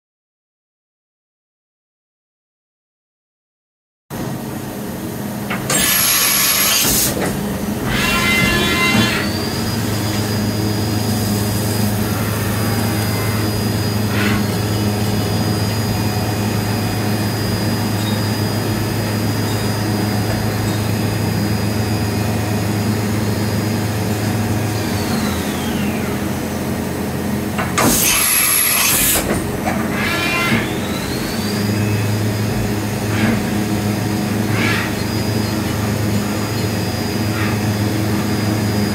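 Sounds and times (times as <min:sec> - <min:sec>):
low machine hum: 0:04.1 - 0:38.9
high spindle whine: 0:04.2 - 0:38.9
loud bursts of hiss: 0:27.8 - 0:29.3.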